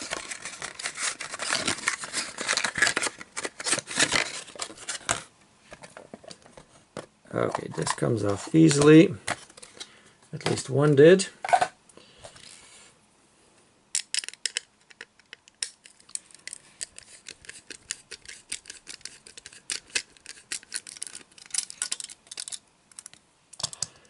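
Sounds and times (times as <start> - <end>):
metal tool scraping plastic: 16.5 - 22.6.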